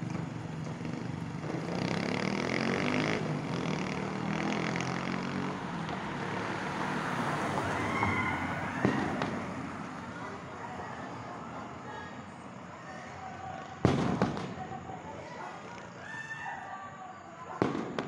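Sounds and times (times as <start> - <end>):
vehicle engine passing: 0.0 - 11.2
road noise: 0.0 - 18.0.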